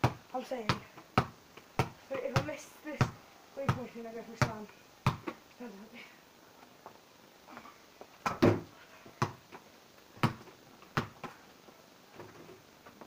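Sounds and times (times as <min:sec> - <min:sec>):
ball bouncing on paving slabs: 0:00.0 - 0:05.4, 0:08.2 - 0:09.5, 0:10.2 - 0:11.3.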